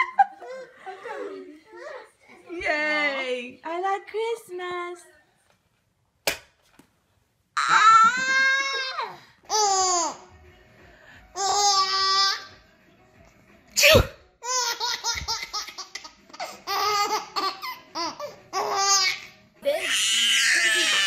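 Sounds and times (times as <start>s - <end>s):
sharp crack: 6.2s - 6.6s
toddler squealing with laughter: 7.6s - 9.8s
baby giggling: 14.4s - 19.2s.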